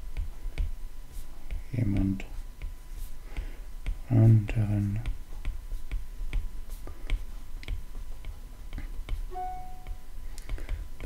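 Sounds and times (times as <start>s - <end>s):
short steady tone: 9.3s - 10.1s.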